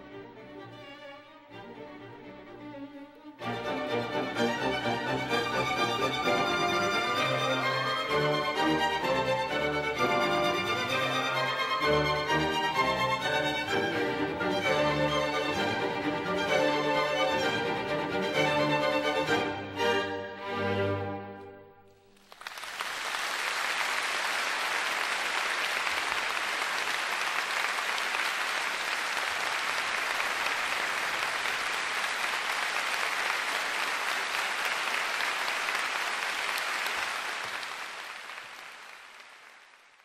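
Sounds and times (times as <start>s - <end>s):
audience applauding: 22.0s - 40.0s.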